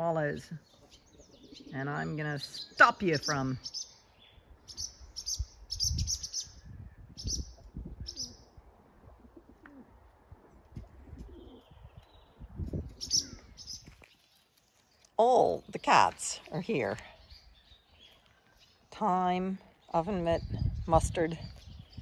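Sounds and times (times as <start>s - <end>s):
doves cooing: 0.8s - 2.1s, 9.0s - 11.9s
swallows twittering: 2.5s - 8.5s, 13.0s - 13.9s.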